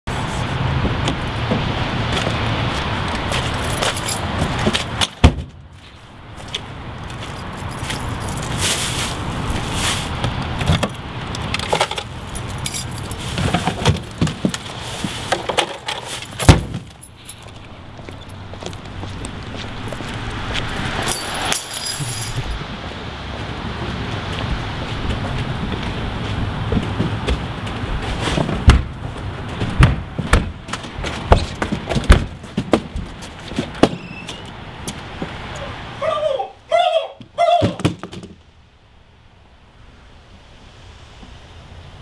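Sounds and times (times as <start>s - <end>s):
keys jangling: 3.3s - 4.3s, 7.2s - 8.6s, 11.8s - 13.3s, 21.0s - 22.5s.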